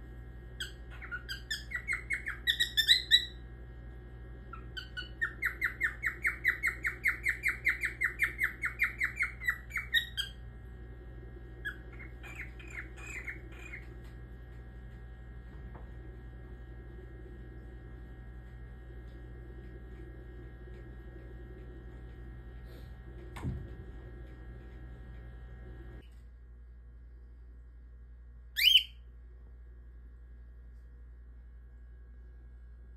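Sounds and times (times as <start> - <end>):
steady hum: 0.0 - 32.9
cockatiel chirping: 0.6 - 3.4, 4.5 - 10.4, 11.7 - 13.9, 28.6 - 29.0.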